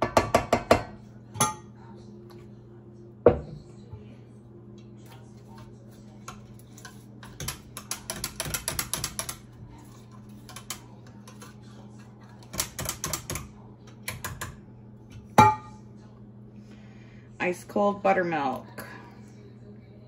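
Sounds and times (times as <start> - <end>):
utensil clicking against mixing bowl: 7.2 - 9.6, 12.4 - 14.6.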